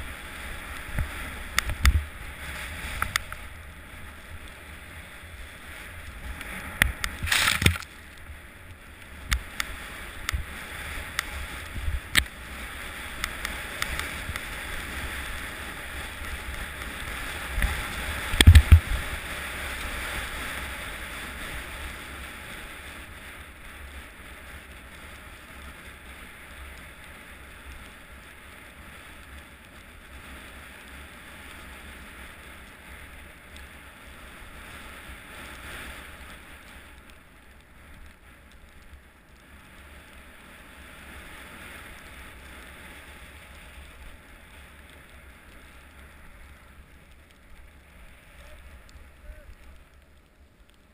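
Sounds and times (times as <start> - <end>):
ski sliding over snow: 0.0 - 50.9
wind on microphone: 9.3 - 20.8.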